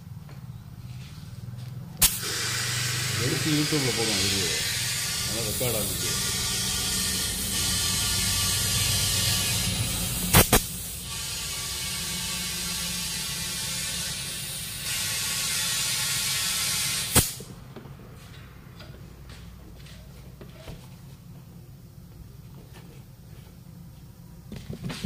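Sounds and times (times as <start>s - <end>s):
compressed air hissing: 2.0s - 17.5s.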